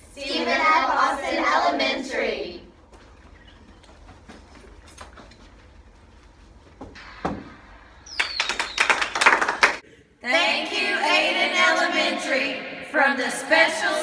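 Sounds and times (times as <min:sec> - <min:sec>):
footsteps: 0:02.4 - 0:08.0.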